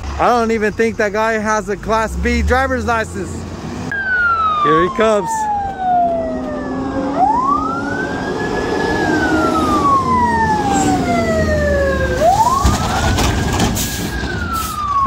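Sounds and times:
diesel engine rumbling: 0.0 - 15.0
fire truck siren wailing: 3.8 - 15.0.

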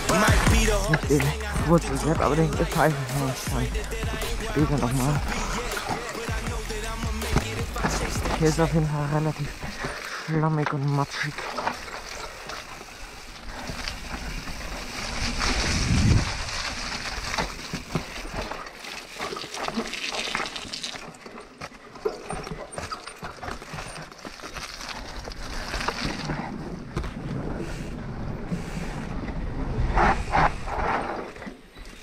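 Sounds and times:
low rumble: 0.0 - 9.1
bike clicking and rattling: 0.0 - 32.0
bike tyres rolling on wet ground: 0.0 - 32.0.

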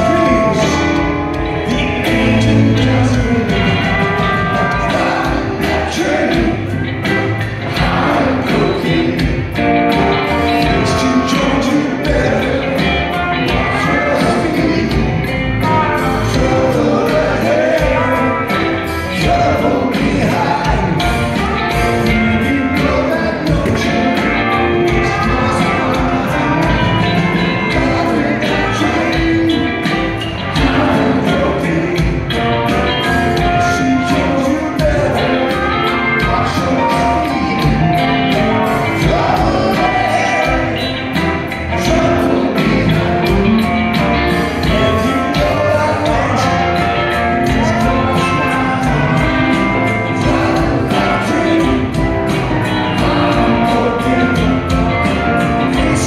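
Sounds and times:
drum kit: 0.0 - 56.0
electric guitar: 0.0 - 56.0
person singing: 0.0 - 56.0
upright bass: 0.0 - 56.0.

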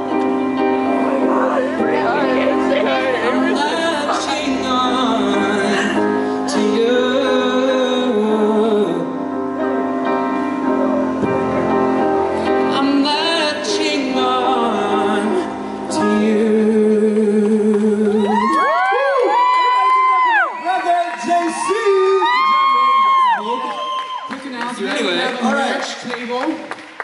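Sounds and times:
instrumental backing music: 0.0 - 18.9
man singing into microphone: 1.6 - 9.4, 12.4 - 18.6.

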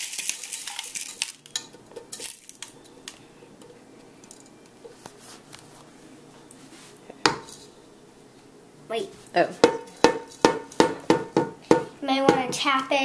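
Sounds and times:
crumbs clinking into foil tin: 0.0 - 3.2.

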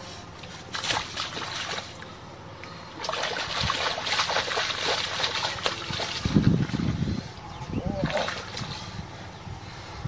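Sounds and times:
hands splashing in muddy water: 0.5 - 2.0, 3.0 - 6.4.

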